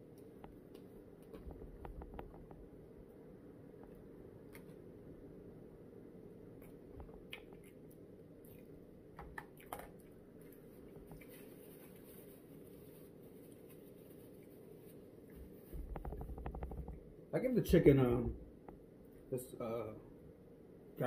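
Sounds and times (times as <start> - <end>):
soft eating mouth noises: 6.5 - 16.3.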